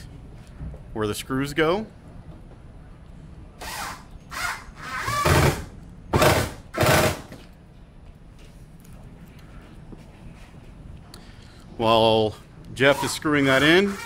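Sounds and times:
cordless drill driving screws: 0:03.6 - 0:05.6, 0:13.0 - 0:14.0.

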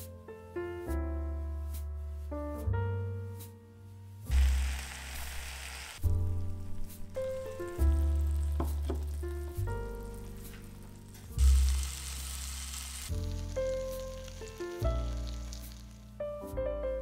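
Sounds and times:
background music: 0:00.0 - 0:17.0
fish sizzling in a pan: 0:04.3 - 0:16.2.

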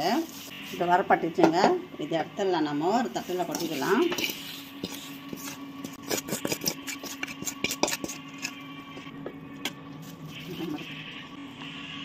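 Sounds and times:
metal spatula scraping and tapping: 0:03.5 - 0:09.8.

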